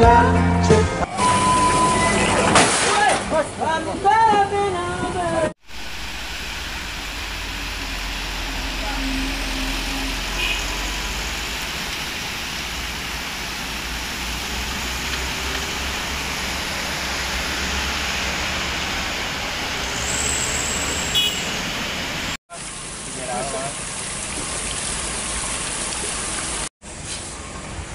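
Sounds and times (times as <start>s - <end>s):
heavy rain hissing: 5.6s - 24.2s
traffic on wet road: 5.6s - 27.9s.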